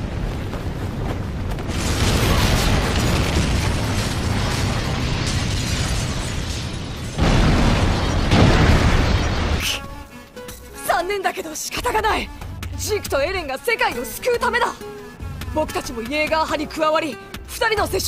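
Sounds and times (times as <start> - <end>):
loud explosion blast: 0.0 - 9.8
rumble of blasts and fire: 0.0 - 10.0.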